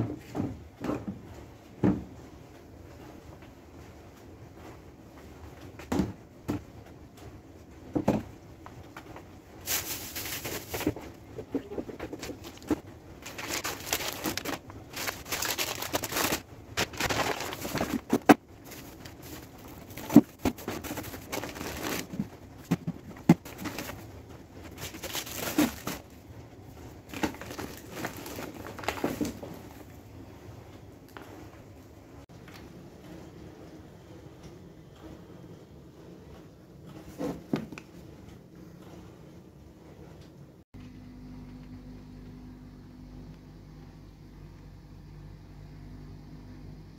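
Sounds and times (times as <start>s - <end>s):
plastic packets crinkling: 9.6s - 26.1s, 27.0s - 29.8s.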